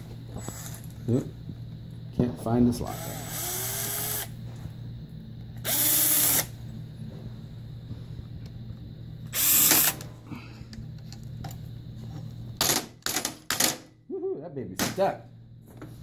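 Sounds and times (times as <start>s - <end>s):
cordless drill spinning: 0.3s - 0.9s, 2.9s - 4.4s, 5.6s - 6.5s, 9.3s - 10.0s.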